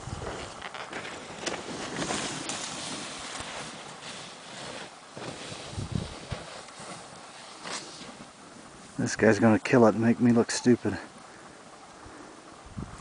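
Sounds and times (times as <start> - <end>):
wind buffeting microphone: 0.0 - 0.6, 5.6 - 6.5, 12.6 - 13.0.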